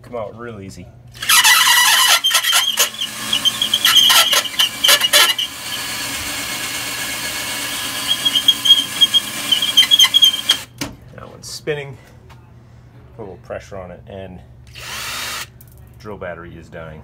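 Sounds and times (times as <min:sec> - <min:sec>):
drill bit squealing against metal: 0:01.2 - 0:10.7.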